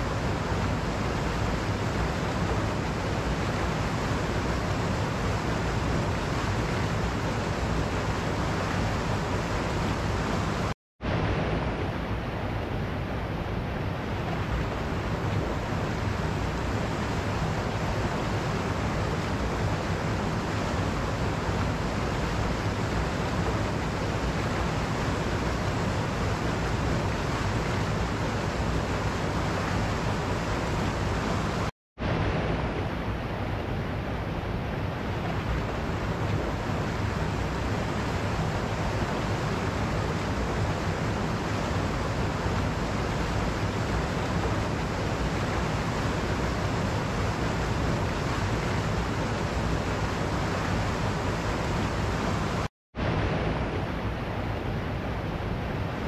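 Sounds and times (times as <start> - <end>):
stream rushing over rocks: 0.0 - 56.0.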